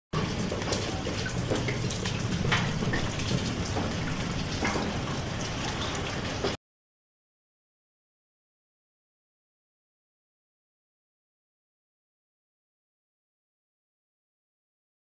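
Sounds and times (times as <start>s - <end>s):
drops splashing: 0.2s - 6.6s
rain falling: 0.2s - 6.6s.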